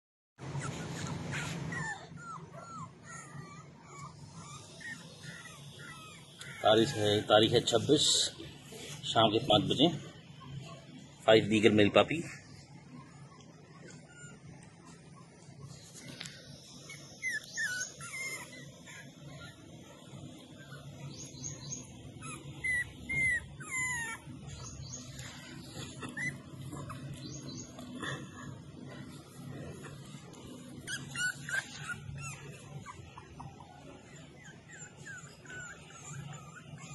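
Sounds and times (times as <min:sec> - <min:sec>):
puppies whimpering: 0:00.4 - 0:36.9.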